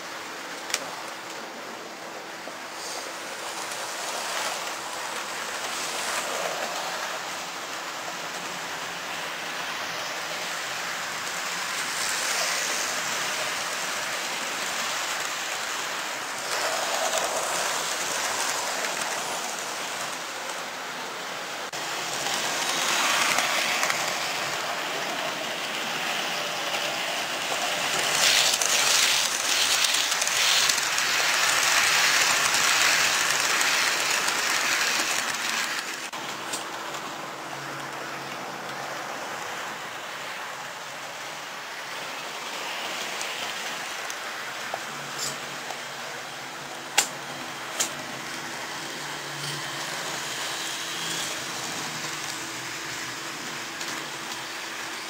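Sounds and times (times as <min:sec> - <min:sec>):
model train wheels rattling: 0:11.1 - 0:20.6, 0:21.9 - 0:37.0.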